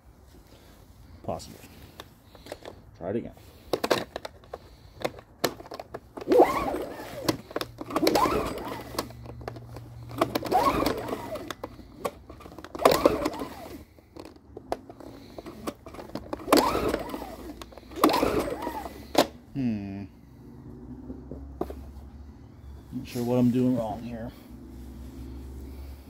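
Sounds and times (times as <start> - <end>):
engine pull-starter whirring: 3.6 - 19.6.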